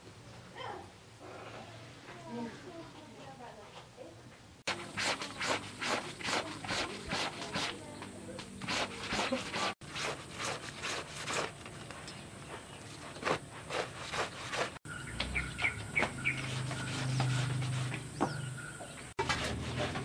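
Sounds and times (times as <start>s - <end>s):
scrapes and knocks: 4.7s - 20.0s
small birds chirping: 5.2s - 9.0s, 11.5s - 13.2s, 14.8s - 19.2s.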